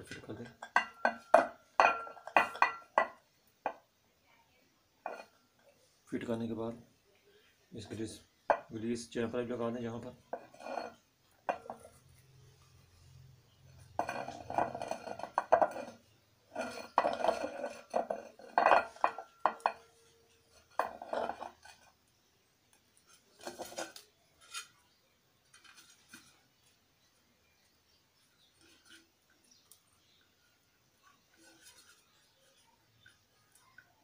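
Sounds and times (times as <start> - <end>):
metal parts clattering and scraping: 13.7 - 20.0, 23.1 - 24.8.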